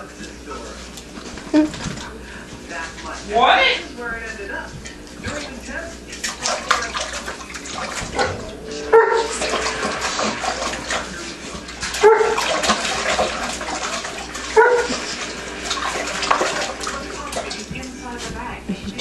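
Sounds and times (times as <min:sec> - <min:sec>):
puppy splashing in water: 0:00.0 - 0:19.0
puppy barking: 0:08.9 - 0:09.6, 0:11.9 - 0:13.0, 0:14.4 - 0:15.4.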